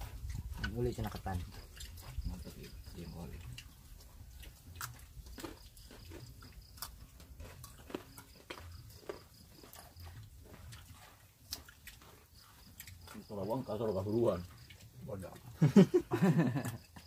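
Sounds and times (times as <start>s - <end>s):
chewing smacks and clicks: 0.0s - 15.6s
fingers in food: 0.2s - 13.3s.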